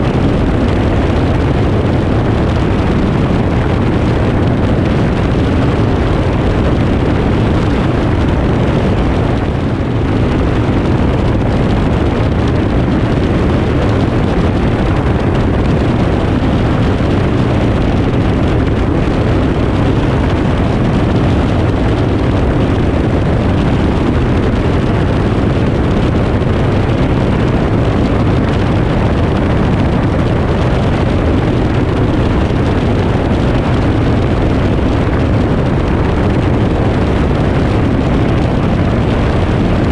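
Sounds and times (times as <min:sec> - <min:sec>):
light aircraft engine drone: 0:00.0 - 0:39.9
rushing wind: 0:00.0 - 0:39.9
wind buffeting microphone: 0:00.0 - 0:39.9.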